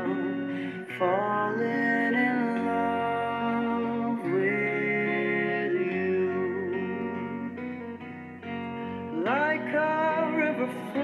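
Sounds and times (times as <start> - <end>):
man singing a slow ballad: 0.0 - 8.0, 9.1 - 11.0
plucked guitar: 0.0 - 11.0.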